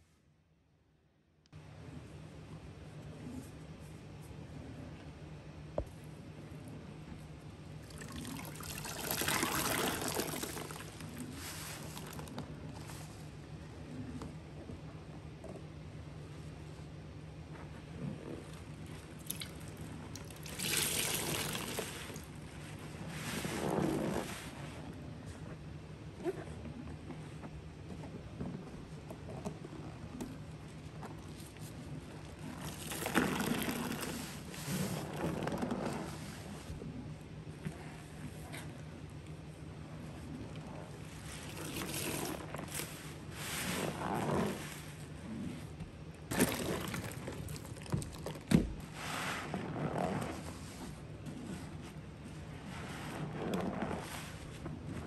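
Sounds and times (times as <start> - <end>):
liquid pouring into a container: 7.8 - 12.3, 19.2 - 22.4, 32.5 - 34.3, 41.2 - 42.9, 46.3 - 48.5
water and suds sloshing: 7.8 - 13.1, 18.4 - 24.5, 31.2 - 36.4, 40.6 - 44.9, 46.3 - 50.8.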